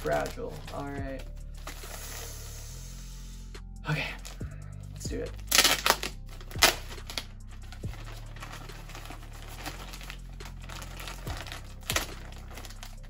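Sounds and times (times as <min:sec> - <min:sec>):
plastic bag crinkling: 0:00.0 - 0:02.2, 0:05.3 - 0:13.0.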